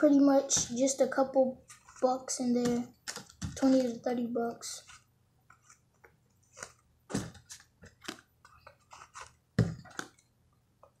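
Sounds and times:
wallet rustling and clicks: 0:04.9 - 0:10.2.

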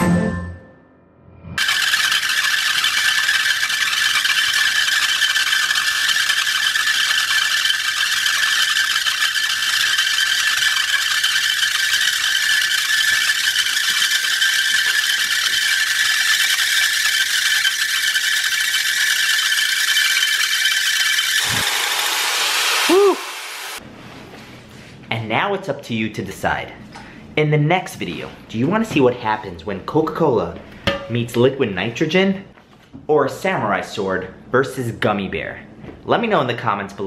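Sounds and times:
polymer balls bouncing on hot pan: 0:01.6 - 0:21.2
high hiss with whistling tones: 0:19.5 - 0:23.8.

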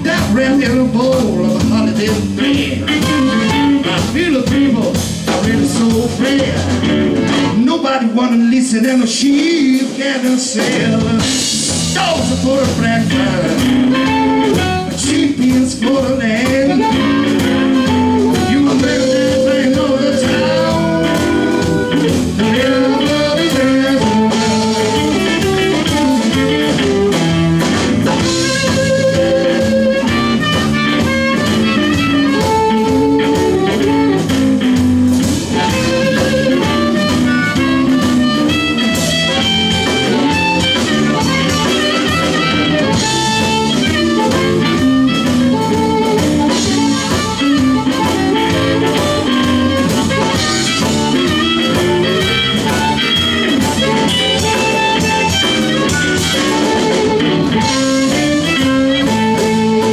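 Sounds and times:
amplified harmonica: 0:00.0 - 0:07.6, 0:12.5 - 0:59.9
drum kit: 0:00.0 - 0:59.9
electric bass: 0:00.0 - 0:59.9
electric guitar: 0:00.0 - 0:59.9.

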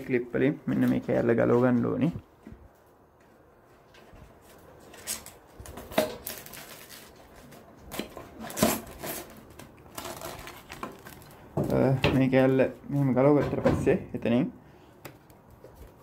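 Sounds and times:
plastic bag rustling: 0:04.4 - 0:12.5.

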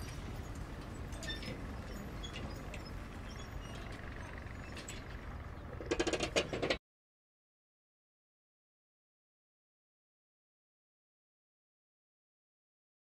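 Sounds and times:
low steady background noise: 0:00.0 - 0:06.8
rapid clatter of clicks: 0:03.7 - 0:06.8.

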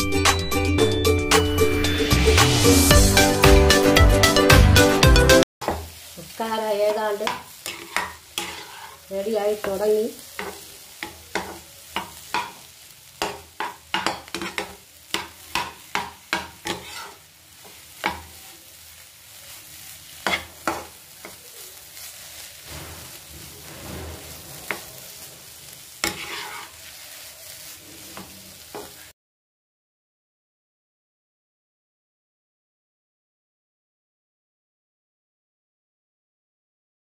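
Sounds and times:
steel spatula scraping pan: 0:05.6 - 0:18.5, 0:20.0 - 0:29.1
faint sizzle: 0:05.6 - 0:29.1.

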